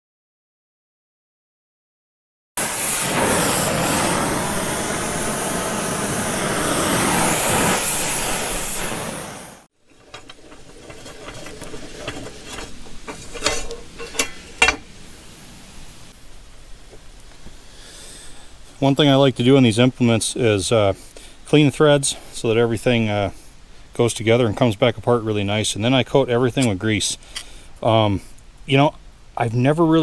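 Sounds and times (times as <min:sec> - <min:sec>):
torch flame hissing: 0:02.6 - 0:09.7
metal knocks: 0:10.0 - 0:14.9.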